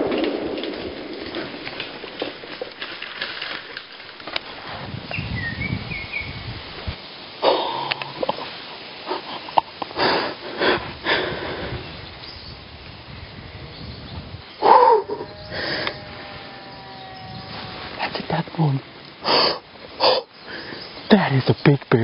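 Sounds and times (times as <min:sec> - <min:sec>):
bird chirp: 0:05.1 - 0:06.5, 0:11.8 - 0:12.6, 0:13.6 - 0:15.8, 0:16.6 - 0:17.8
breathy sniffs: 0:19.2 - 0:20.9.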